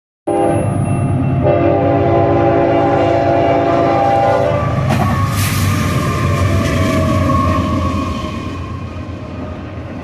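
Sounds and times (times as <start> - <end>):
locomotive air horn: 0.3 - 0.8, 1.4 - 4.8
locomotive engine: 0.3 - 10.0
train running over crossing: 0.3 - 10.0.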